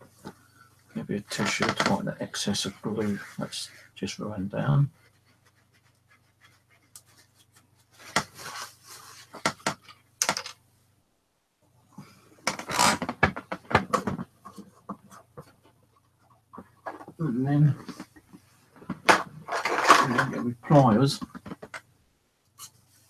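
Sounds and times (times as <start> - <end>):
paper tissue rustling and crumpling: 7.2 - 9.4.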